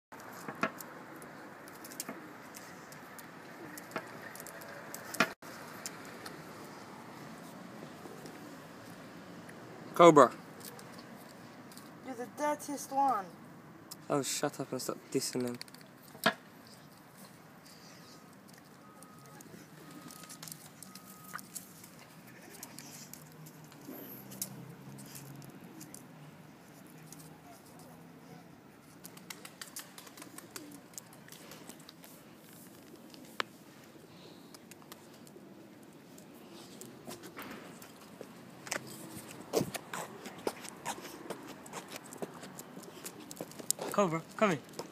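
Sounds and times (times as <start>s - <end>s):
dog claws clicking on paving: 0.2s - 6.4s, 15.4s - 16.4s, 18.5s - 26.1s, 29.0s - 33.5s, 34.5s - 44.9s
distant traffic hiss: 0.2s - 15.3s, 17.3s - 29.6s.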